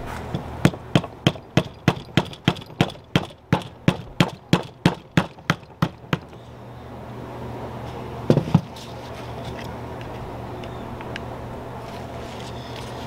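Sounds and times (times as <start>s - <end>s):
rapid sharp knocking: 0.4s - 6.4s.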